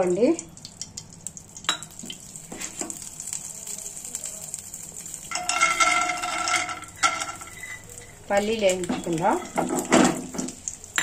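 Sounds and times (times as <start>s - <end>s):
oil crackling in pan: 0.0s - 11.0s
peanuts clattering into pan: 2.6s - 11.0s.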